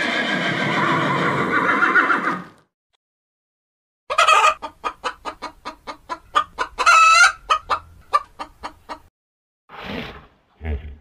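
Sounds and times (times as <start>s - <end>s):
chicken drawn-out call: 0.0s - 2.6s, 4.1s - 9.0s
chickens clucking: 4.1s - 9.1s.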